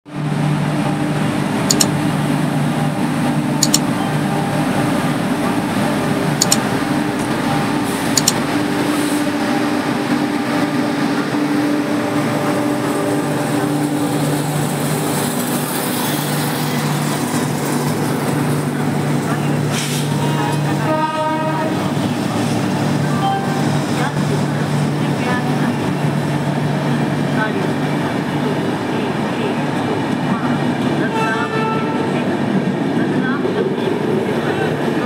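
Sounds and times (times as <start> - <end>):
train passing with hum and rumble: 0.1 - 35.0
sharp metallic clicks: 1.7 - 2.0, 3.6 - 4.0, 6.4 - 6.7, 8.1 - 8.5.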